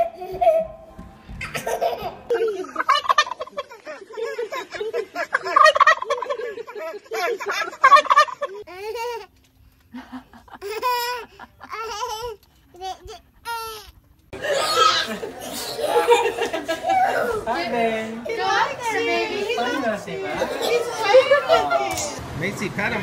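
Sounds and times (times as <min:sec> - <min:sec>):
turkey gobbling: 0:02.8 - 0:03.5, 0:05.3 - 0:06.4, 0:07.8 - 0:08.5.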